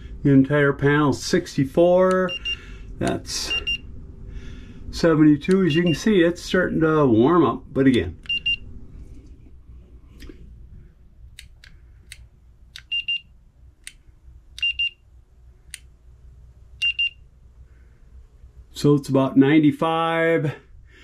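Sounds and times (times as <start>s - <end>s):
thermometer high beeps: 2.2s - 2.7s, 3.4s - 3.9s, 5.6s - 6.1s, 8.2s - 8.6s, 12.8s - 13.3s, 16.8s - 17.2s
sharp clicks: 11.3s - 13.0s.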